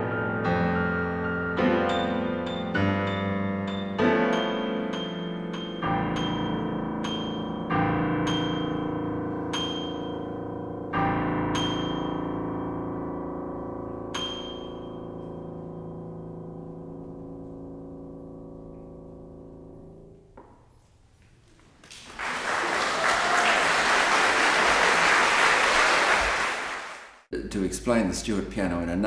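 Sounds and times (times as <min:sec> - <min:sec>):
high piano note: 0:00.0 - 0:20.8
piano chord ringing: 0:00.0 - 0:20.9
audience applauding: 0:21.8 - 0:27.2.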